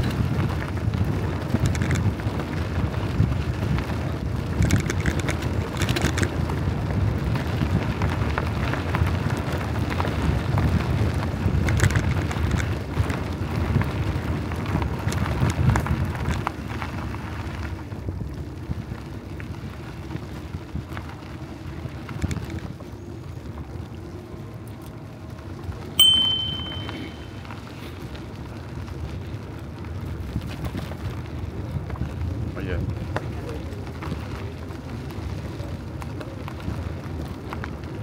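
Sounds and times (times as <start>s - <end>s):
wind rumbling on microphone: 0.0s - 26.2s, 27.2s - 38.0s
scattered clicks and rattles: 1.4s - 2.2s, 4.5s - 6.4s, 11.6s - 13.1s.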